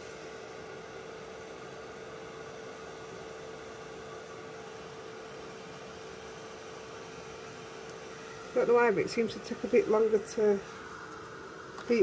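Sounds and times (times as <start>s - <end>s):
heat gun motor whine: 6.2s - 12.0s.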